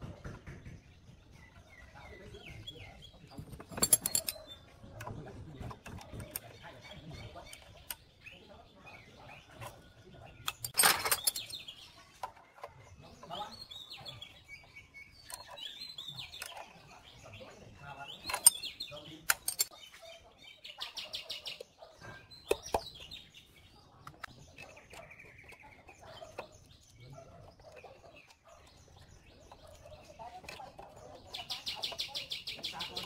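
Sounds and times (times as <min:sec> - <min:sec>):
birds chirping: 0:00.0 - 0:33.0
wrench clinking on metal engine parts: 0:03.4 - 0:04.6, 0:10.5 - 0:11.8, 0:18.2 - 0:19.8.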